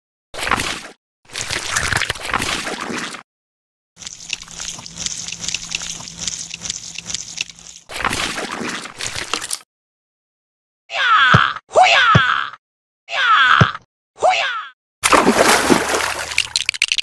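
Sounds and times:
water trickling: 4.0 - 7.9, 15.2 - 17.0
liquid sloshing: 4.0 - 9.6, 15.0 - 17.0.

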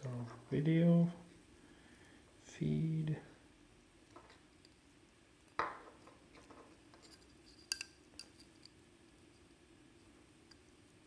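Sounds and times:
small clicks and taps handling metal: 6.0 - 8.8.

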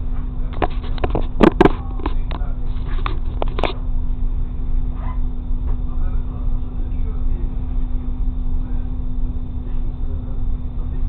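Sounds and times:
railcar rumbling: 0.0 - 11.0
sharp clicks and knocks: 0.5 - 3.8.

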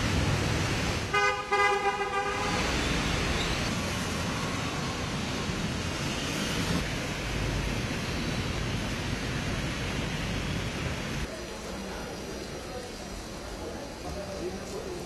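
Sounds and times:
tyres on wet road: 0.0 - 15.0
vehicle horn honking: 1.1 - 2.6.

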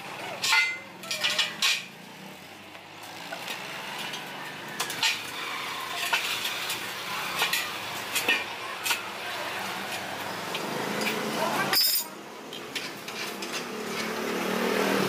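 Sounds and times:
steel tubes clanking on concrete: 0.3 - 2.0, 3.3 - 9.1, 9.8 - 14.1.

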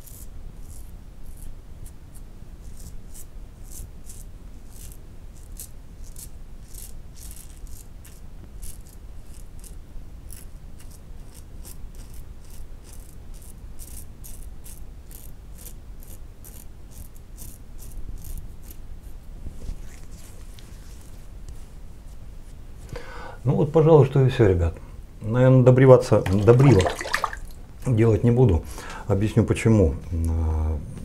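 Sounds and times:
razor scraping stubble: 0.0 - 19.2.

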